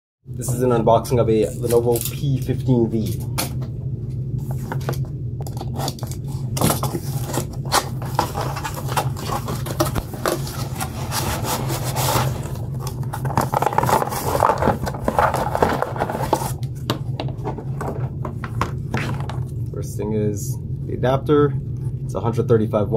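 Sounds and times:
steady low hum: 0.3 - 22.9
cardboard box being handled: 6.6 - 16.7.

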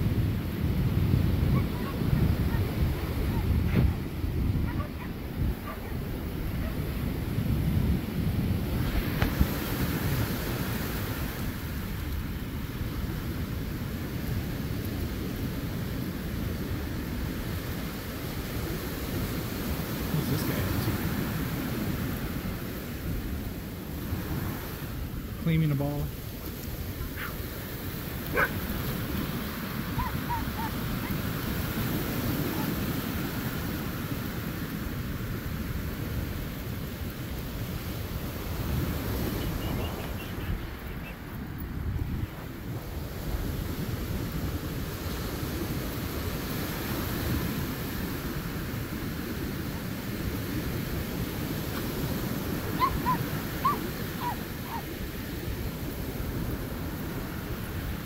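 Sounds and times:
surf: 0.0 - 14.4, 15.1 - 58.0
wind: 0.0 - 58.0
dog barking: 4.6 - 6.9, 27.0 - 27.4, 28.3 - 28.6, 29.9 - 31.2, 32.4 - 32.8, 52.7 - 54.9
dog yipping: 4.7 - 6.0, 27.0 - 27.4, 28.3 - 28.6, 30.0 - 31.2, 32.5 - 32.7, 52.7 - 54.9
short high calls: 52.8 - 54.9.

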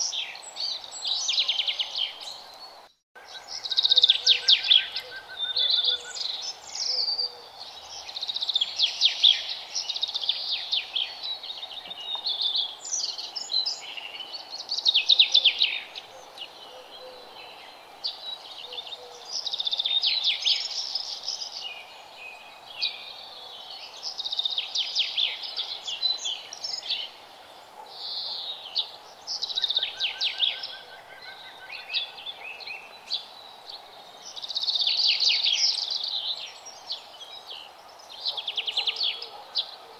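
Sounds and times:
songbirds chirping and trilling: 0.0 - 39.9.

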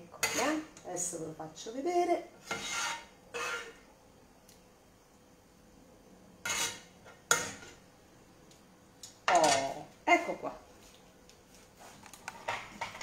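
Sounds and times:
metal spoon scraping frying pan: 0.1 - 0.8, 2.4 - 3.8, 6.4 - 7.8.

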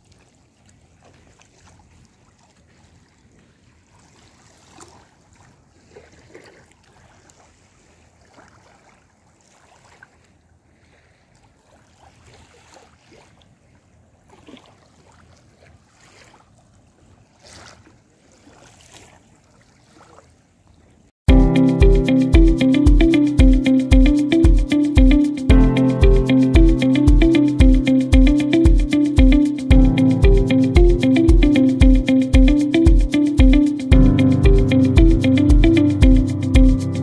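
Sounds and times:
gentle waves lapping on sand: 0.0 - 21.1.

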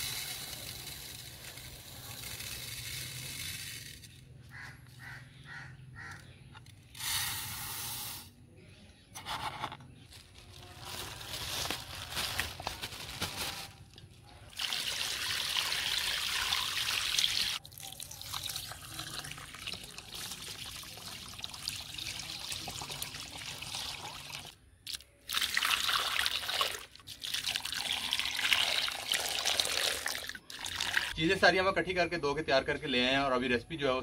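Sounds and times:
water running and trickling: 14.5 - 31.2.

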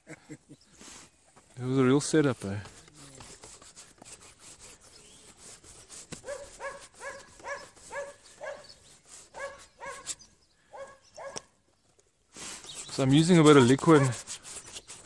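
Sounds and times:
dog barking: 6.2 - 8.7, 9.4 - 10.1, 10.7 - 11.5, 13.6 - 14.2.

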